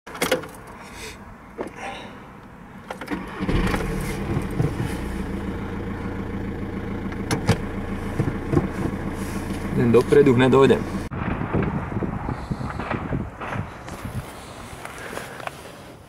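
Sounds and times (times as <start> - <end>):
diesel engine starting and idling: 2.7 - 13.5.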